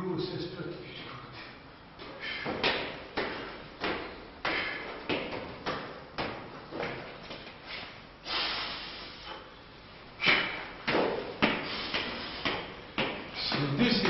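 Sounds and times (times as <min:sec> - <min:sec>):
hard shoes on concrete stairs: 0:02.0 - 0:07.6, 0:10.2 - 0:14.0.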